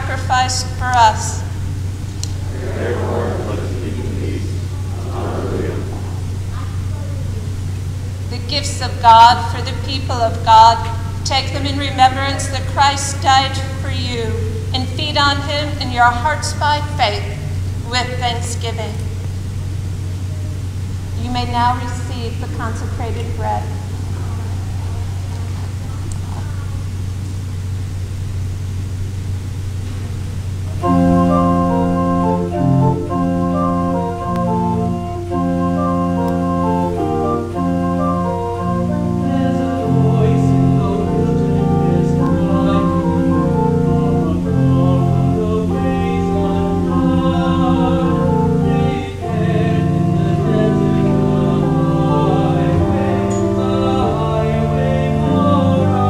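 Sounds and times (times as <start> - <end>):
church organ sustained chords: 0.0 - 6.5, 30.7 - 56.0
steady low hum: 0.0 - 56.0.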